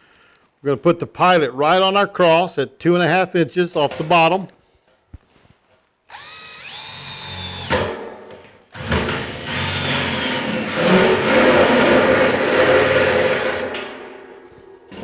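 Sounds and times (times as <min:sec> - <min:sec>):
drill motor whining: 0:06.1 - 0:07.8, 0:08.7 - 0:13.6
hole saw grinding through metal: 0:08.7 - 0:13.8.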